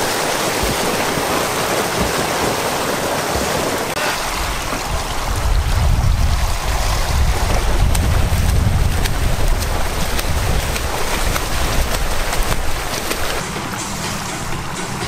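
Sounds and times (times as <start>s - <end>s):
swimmers splashing water: 0.0s - 15.0s
wind rumble on microphone: 3.7s - 13.4s.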